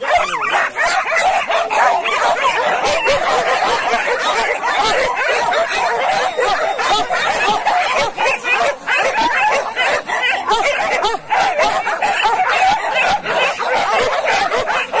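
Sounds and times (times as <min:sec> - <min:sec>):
dogs yelping and barking: 0:00.0 - 0:15.0.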